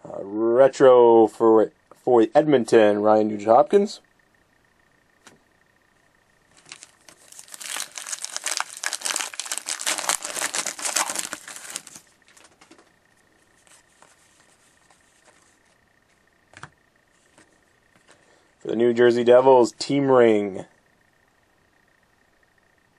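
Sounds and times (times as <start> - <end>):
faint rustling of cards: 6.5 - 18.8
wrapper tearing and crinkling: 6.6 - 12.6.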